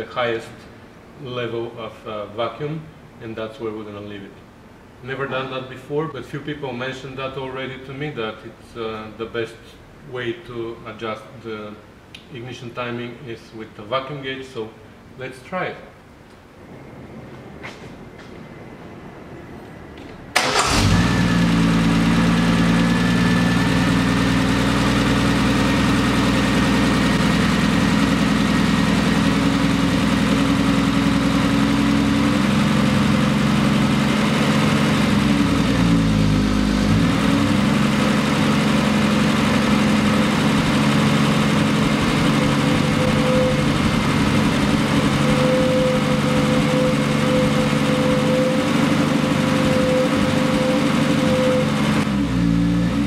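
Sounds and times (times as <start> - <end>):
car engine idling fast: 20.5 - 53.0.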